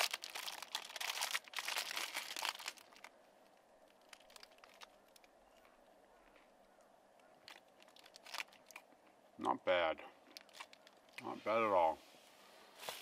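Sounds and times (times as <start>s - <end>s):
wrapper crinkling: 0.0s - 3.2s, 3.8s - 5.3s, 7.4s - 8.8s, 10.3s - 11.2s.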